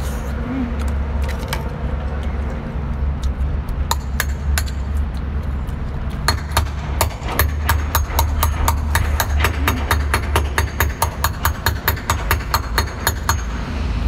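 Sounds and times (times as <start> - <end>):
chewing: 0.7 - 3.9, 4.8 - 6.3.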